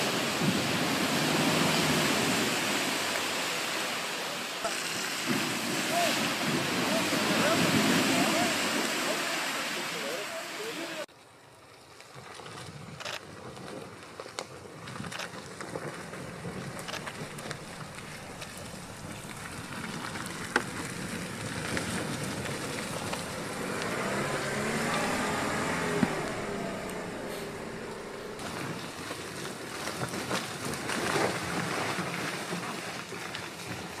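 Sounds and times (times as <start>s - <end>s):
sharp clicks and cracks: 14.1s - 23.3s
tyres on dirt: 14.2s - 32.4s
vehicle engine running: 16.5s - 29.2s.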